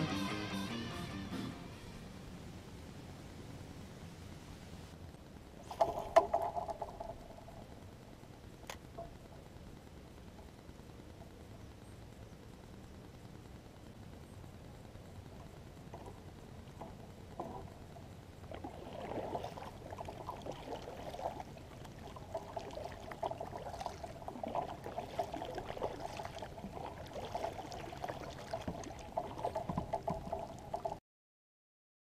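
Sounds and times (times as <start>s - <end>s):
water lapping against kayak hull: 5.6s - 7.3s, 15.8s - 31.0s.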